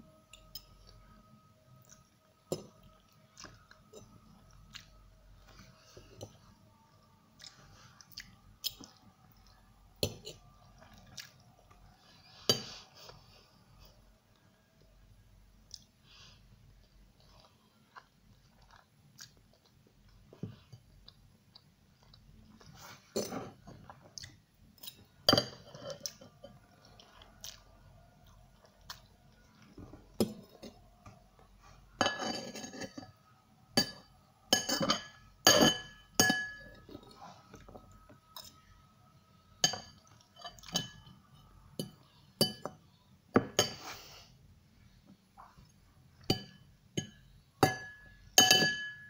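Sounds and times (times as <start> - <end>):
chewing: 7.4 - 12.3, 16.8 - 25.1, 25.9 - 29.8
metal fork clinking on ceramic bowl: 33.8 - 36.8, 46.3 - 49.0.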